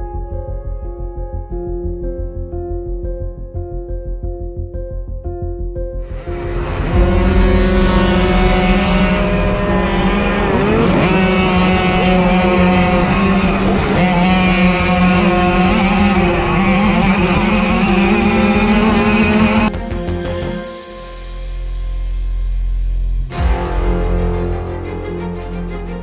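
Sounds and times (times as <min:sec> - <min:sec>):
mopeds racing at high revs: 0:06.1 - 0:20.6.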